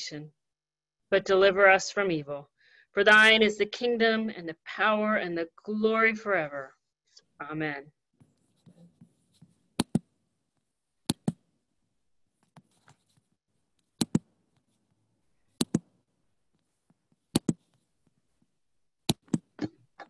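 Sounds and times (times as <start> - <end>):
computer mouse clicks: 9.8 - 10.0, 11.1 - 11.4, 13.8 - 14.6, 15.6 - 15.9, 17.3 - 17.7, 19.1 - 19.7.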